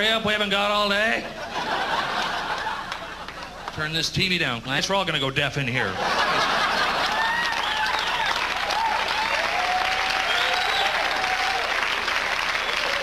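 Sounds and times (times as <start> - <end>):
audience applauding and cheering: 6.6 - 13.0
drawn-out whoops: 7.1 - 13.0.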